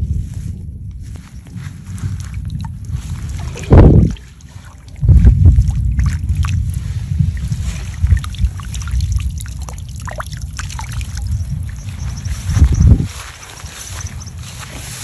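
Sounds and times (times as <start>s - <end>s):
low rumble: 0.0s - 15.0s
water trickling and dripping: 2.0s - 15.0s
water sloshing: 2.2s - 15.0s
water splash: 3.2s - 11.8s.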